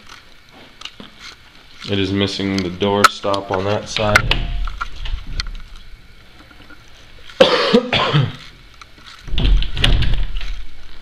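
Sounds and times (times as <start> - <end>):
person coughing: 7.4 - 8.4
person clearing throat: 7.4 - 8.5.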